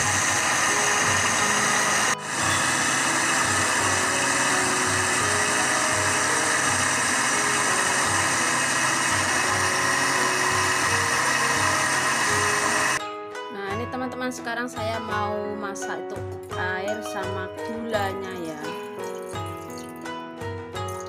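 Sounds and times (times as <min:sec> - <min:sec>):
electric blender running: 0:00.0 - 0:13.0, 0:18.4 - 0:20.0.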